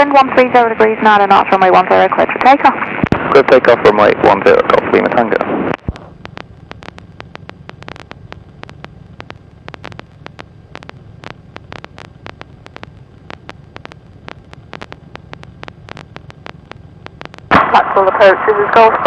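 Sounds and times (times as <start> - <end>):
irregular clicks and crackles: 5.7 - 17.8.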